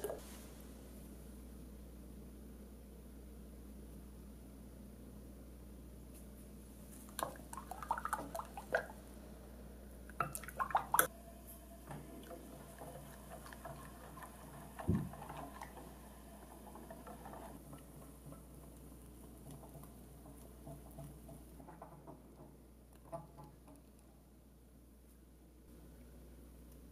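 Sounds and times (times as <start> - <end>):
whisk stirring cream in pan: 12.0 - 21.9.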